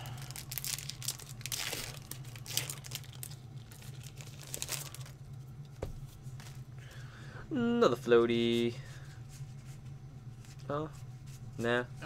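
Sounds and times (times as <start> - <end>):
cards and foil wrappers crinkling: 0.0 - 5.4.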